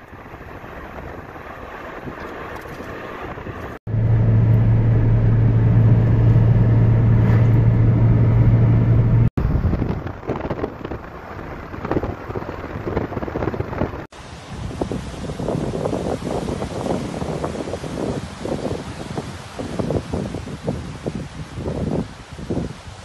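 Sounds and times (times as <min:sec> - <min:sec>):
wind buffeting microphone: 0:00.0 - 0:23.0
car interior low drone: 0:02.4 - 0:12.8.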